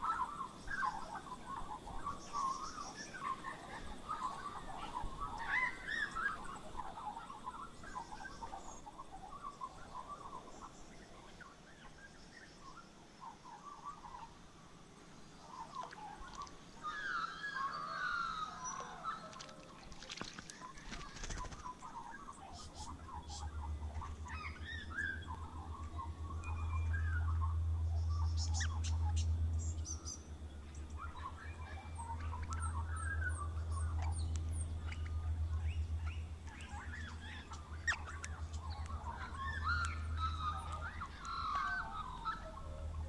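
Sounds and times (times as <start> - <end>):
birds chirping and whistling: 0.0 - 10.6, 15.5 - 19.4, 20.4 - 43.0
low hum: 20.4 - 43.0.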